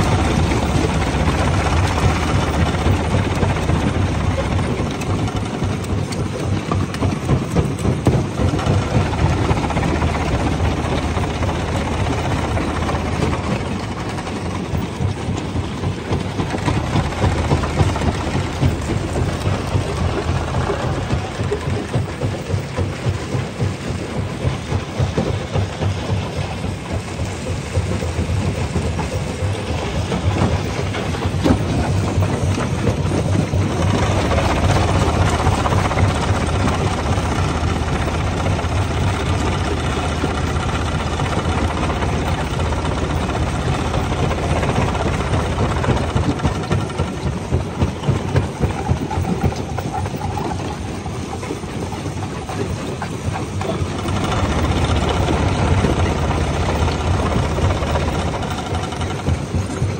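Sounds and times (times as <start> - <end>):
machine low hum: 53.6 - 59.9.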